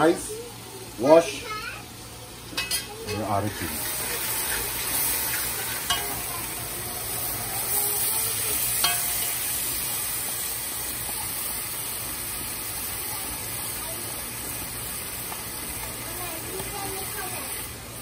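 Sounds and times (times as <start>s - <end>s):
liquid sizzling in a pot: 0.0s - 18.0s
metal spoon scraping and clinking: 4.4s - 6.3s, 8.7s - 9.5s.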